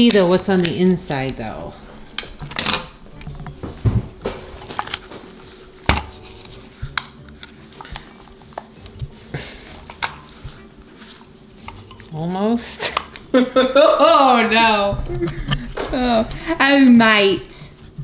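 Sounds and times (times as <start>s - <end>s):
scissors snipping: 0.0s - 1.4s.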